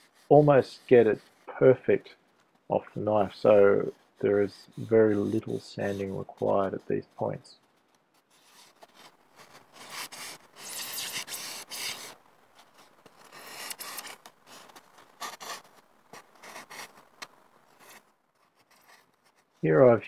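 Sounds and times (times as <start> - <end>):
blades scraping and cutting foam: 13.3 - 14.2.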